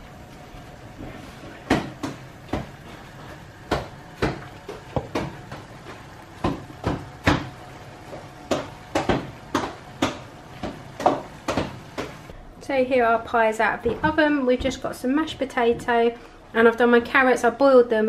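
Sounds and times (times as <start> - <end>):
potato masher knocking in pan: 3.6 - 12.2.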